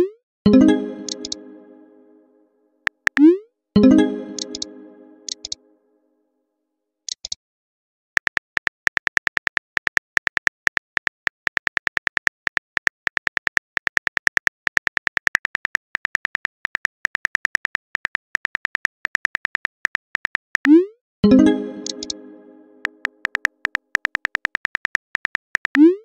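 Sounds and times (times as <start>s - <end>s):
phone keyboard clicks: 4.4s - 4.7s, 7.1s - 7.4s, 21.8s - 22.2s, 22.8s - 25.8s.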